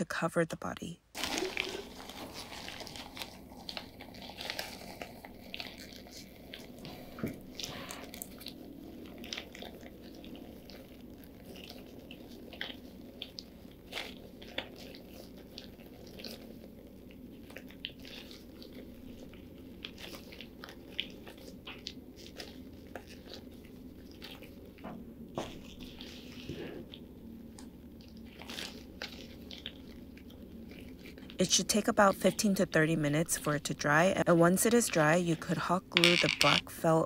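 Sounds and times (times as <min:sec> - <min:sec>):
faint steady hum: 0:00.0 - 0:37.0
tissue paper crinkling: 0:01.2 - 0:08.3, 0:28.1 - 0:31.4.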